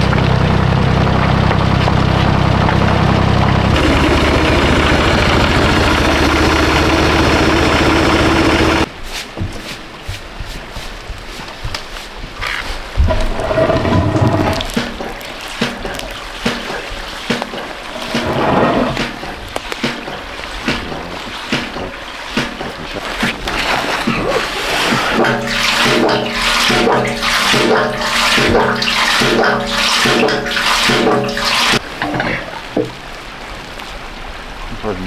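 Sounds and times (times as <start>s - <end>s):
water gushing and splashing: 0.0s - 35.0s.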